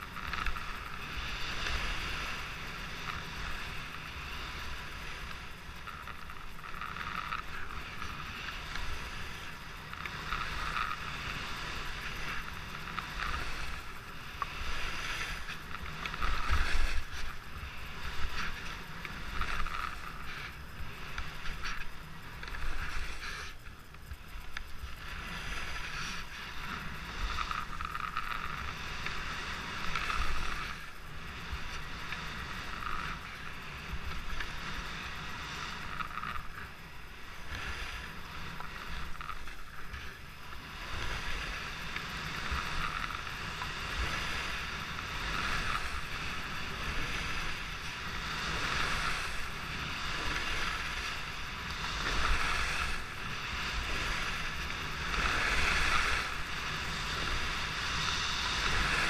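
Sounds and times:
skis scraping on snow: 0.0s - 59.0s.

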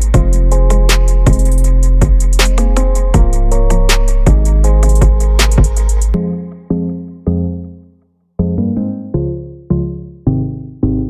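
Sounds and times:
electronic beat with bass: 0.0s - 7.6s
held chords: 0.0s - 11.0s.

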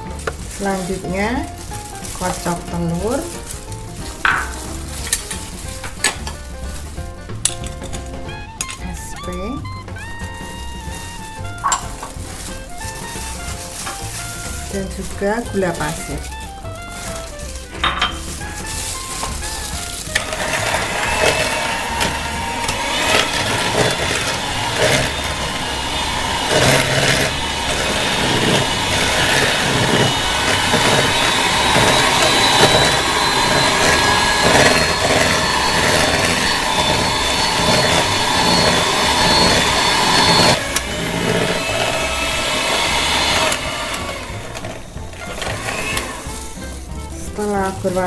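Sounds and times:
electric hand mixer running: 0.0s - 6.4s, 9.9s - 48.0s.

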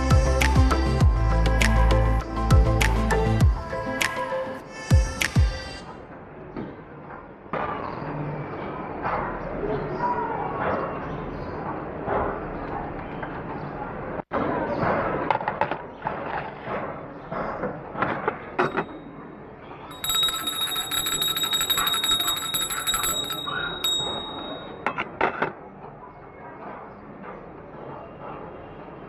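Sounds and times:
small bell ringing rapidly: 19.9s - 24.8s.

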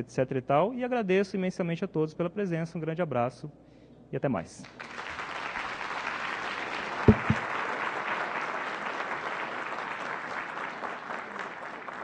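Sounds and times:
audience applauding: 4.8s - 12.0s
dull low thumps: 7.1s - 7.4s.

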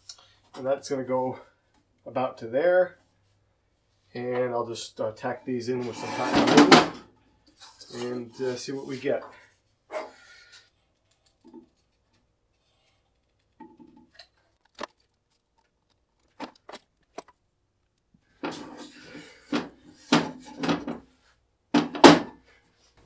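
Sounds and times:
wood knocking and scraping on metal: 5.8s - 7.8s, 18.4s - 21.1s, 21.8s - 22.4s.

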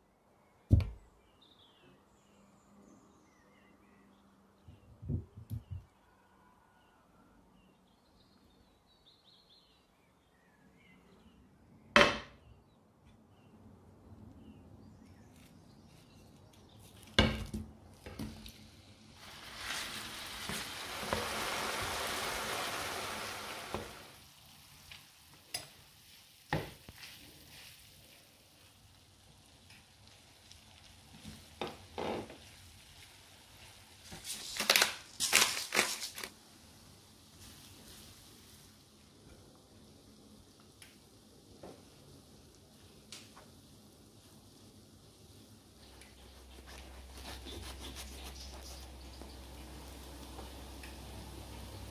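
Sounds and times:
hiss: 18.9s - 25.1s.

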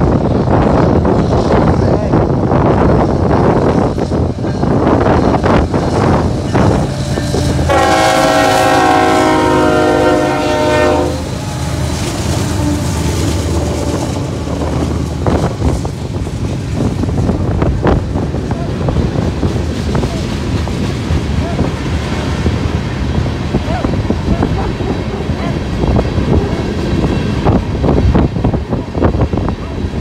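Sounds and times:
train engine and wheels rumbling: 0.0s - 30.0s
train air horn blast: 7.3s - 11.7s.

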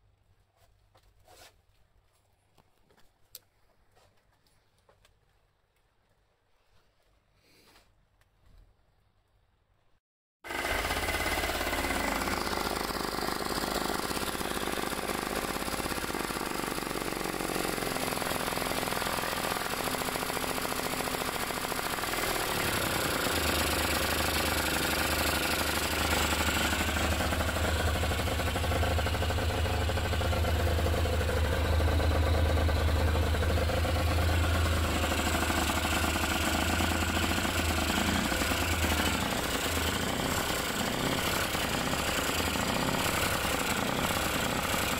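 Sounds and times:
two-stroke engine idling: 10.5s - 44.9s.

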